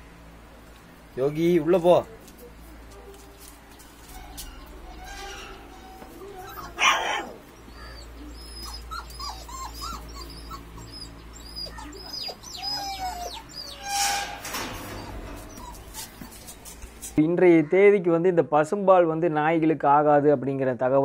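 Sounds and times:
puppies whimpering: 0:04.2 - 0:17.2.

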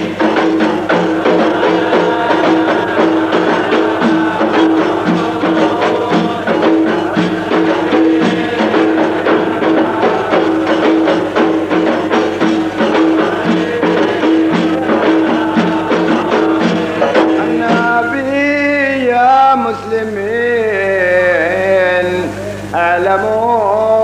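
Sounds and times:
hand drums beating fast rhythm: 0:00.0 - 0:18.8
steady hum: 0:00.0 - 0:24.0.

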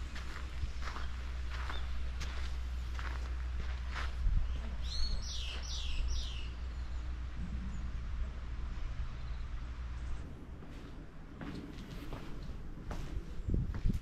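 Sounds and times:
footsteps on gravel: 0:00.0 - 0:06.0, 0:10.6 - 0:14.0
steady low rumble: 0:00.0 - 0:14.0
songbird whistling: 0:04.5 - 0:06.6.

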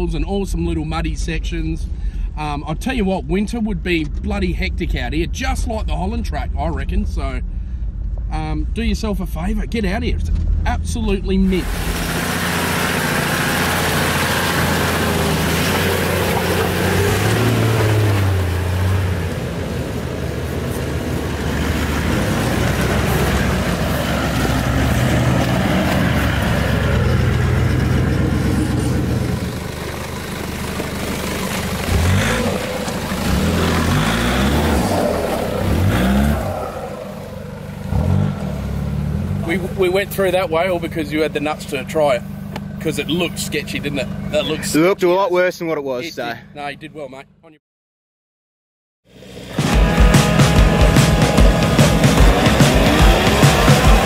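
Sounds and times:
vehicle engines under load: 0:10.2 - 0:46.5, 0:49.2 - 0:54.0.

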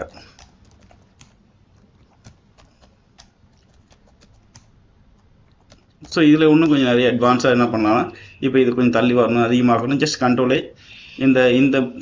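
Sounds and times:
keyboard typing clicks: 0:00.0 - 0:01.4, 0:02.0 - 0:04.8, 0:05.5 - 0:06.9.

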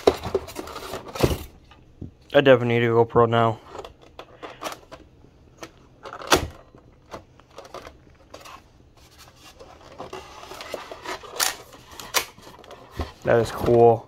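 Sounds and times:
rubbing and scraping on styrofoam: 0:08.5 - 0:13.5.

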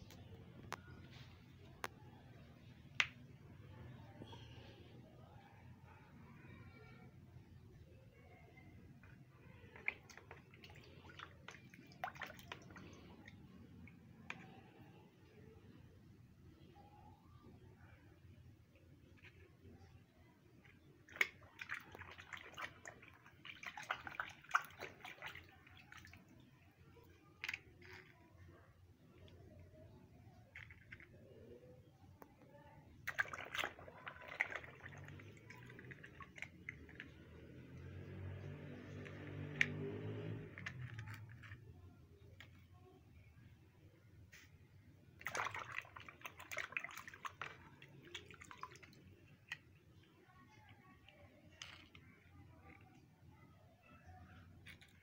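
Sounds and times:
water splashing in a plastic tub: 0:08.6 - 0:14.6, 0:19.1 - 0:28.4, 0:32.8 - 0:41.4, 0:45.1 - 0:52.8
hand scrubbing toy car: 0:33.2 - 0:41.8.

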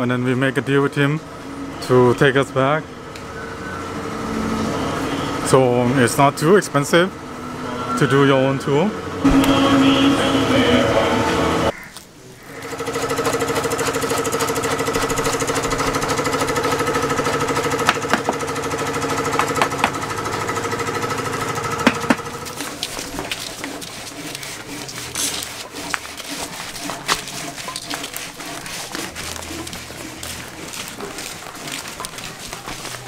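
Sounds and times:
jackhammer pulsing: 0:12.6 - 0:33.0.

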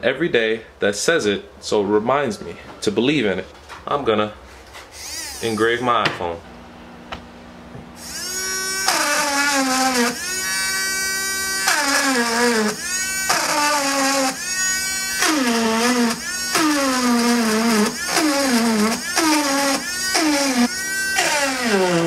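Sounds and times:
electric engraving pen whine: 0:05.0 - 0:05.8, 0:08.0 - 0:22.0.

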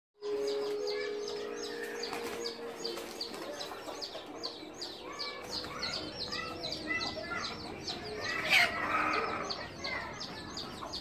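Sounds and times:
hens calling: 0:00.5 - 0:11.0.

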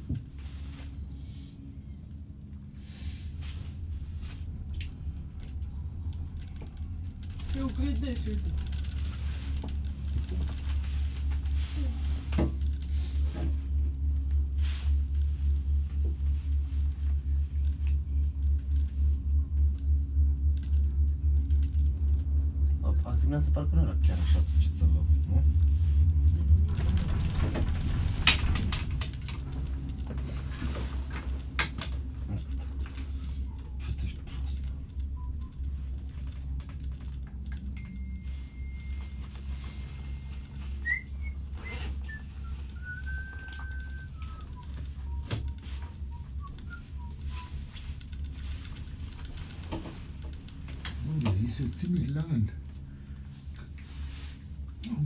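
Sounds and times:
faint steady hum: 0:00.0 - 0:55.0
low throbbing rumble: 0:00.0 - 0:55.0
high whistling tones: 0:39.8 - 0:47.8.

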